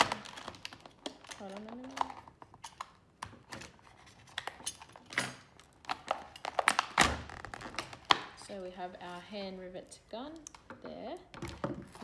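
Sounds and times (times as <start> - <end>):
scissors cutting plastic packaging: 0.0 - 8.3
plastic crackling and snapping: 0.0 - 8.6.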